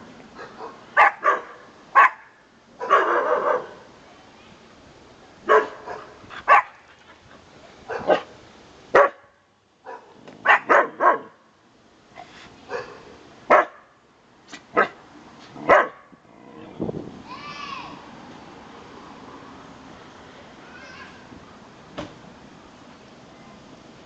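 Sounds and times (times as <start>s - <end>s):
dog barking: 0.4s - 3.8s, 5.5s - 6.8s, 7.9s - 8.3s, 8.9s - 9.3s, 9.9s - 11.4s, 12.7s - 13.9s, 15.6s - 16.1s.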